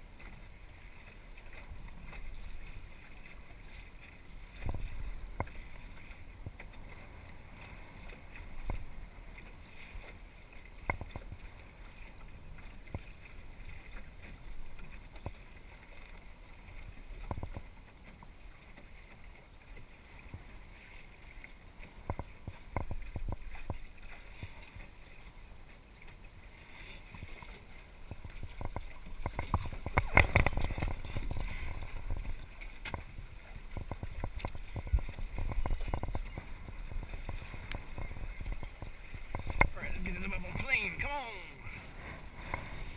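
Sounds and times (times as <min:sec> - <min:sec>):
water slapping against hull: 0:00.0 - 0:42.9
wind on microphone: 0:28.1 - 0:42.9.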